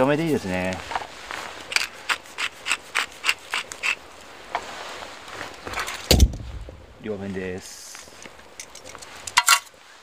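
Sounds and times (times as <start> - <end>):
loud thump: 6.1 - 6.9.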